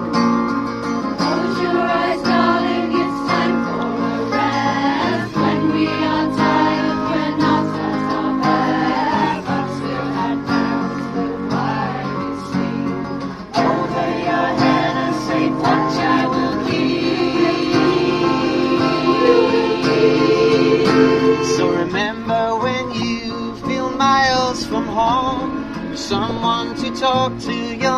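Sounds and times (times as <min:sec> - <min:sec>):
strummed acoustic guitars: 0:00.0 - 0:27.9
choir singing held notes: 0:01.2 - 0:23.0.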